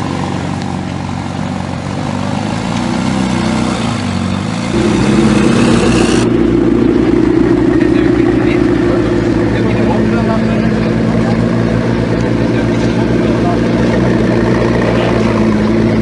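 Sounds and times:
car engine idling: 0:00.0 - 0:16.0
car engine running at low speed: 0:00.0 - 0:16.0.

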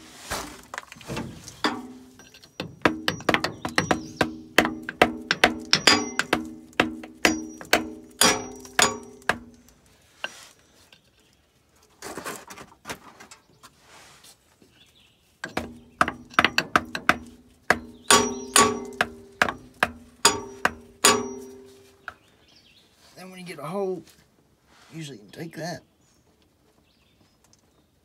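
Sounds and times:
hammer striking metal: 0:01.6 - 0:09.7, 0:15.4 - 0:22.0.

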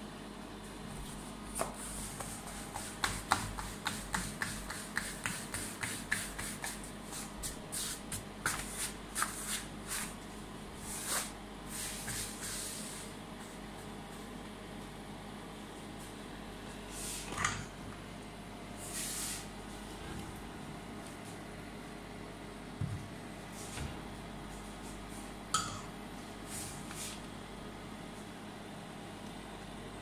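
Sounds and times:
hands patting dough: 0:01.0 - 0:10.2.

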